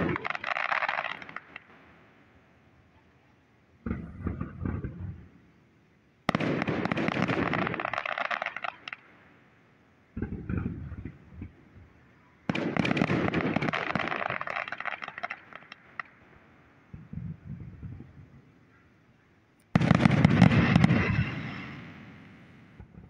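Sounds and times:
firework shells bursting: 0:00.0 - 0:01.8, 0:06.3 - 0:09.2, 0:10.2 - 0:18.4, 0:19.6 - 0:23.0
firework crackling: 0:00.0 - 0:02.0, 0:03.9 - 0:05.3, 0:06.3 - 0:09.4, 0:10.1 - 0:18.4, 0:19.7 - 0:23.0.

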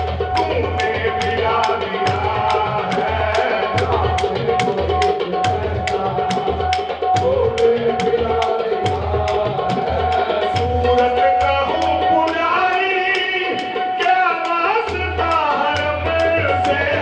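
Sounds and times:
hand drum beat: 0:00.0 - 0:17.0
harmonium notes: 0:00.0 - 0:17.0
voices singing: 0:00.0 - 0:17.0.

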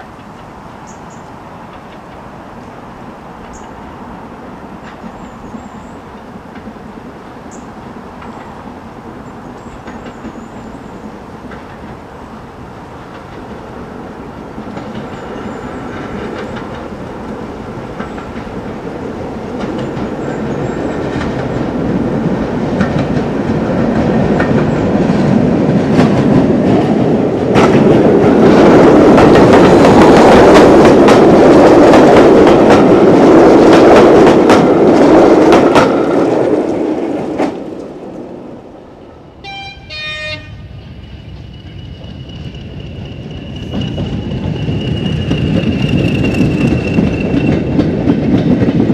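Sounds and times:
steam locomotive passing: 0:00.0 - 0:48.9
train whistle toot: 0:39.4 - 0:45.5.

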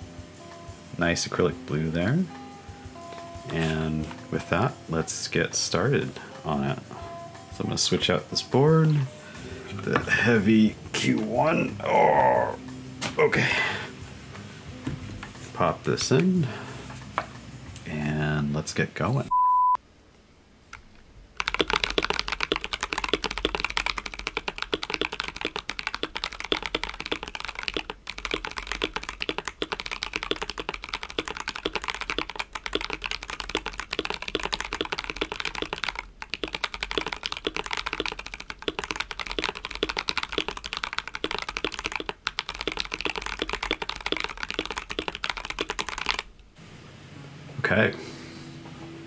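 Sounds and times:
fast typing on mechanical keyboard: 0:21.4 - 0:46.3.

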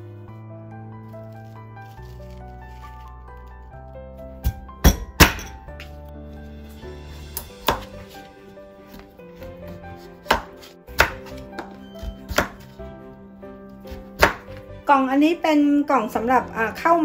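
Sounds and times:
soft background music: 0:00.0 - 0:17.0
knife chopping on wooden board: 0:07.4 - 0:08.2, 0:08.9 - 0:12.8, 0:13.9 - 0:14.6.

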